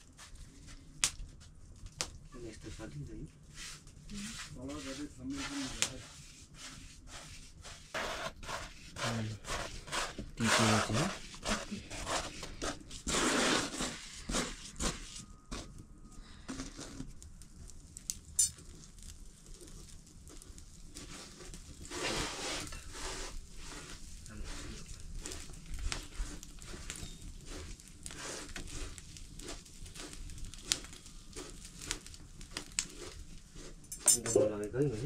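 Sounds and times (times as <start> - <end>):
rustling or scraping: 2.3 - 17.2, 18.4 - 35.0
pots and utensils clattering: 33.9 - 34.6.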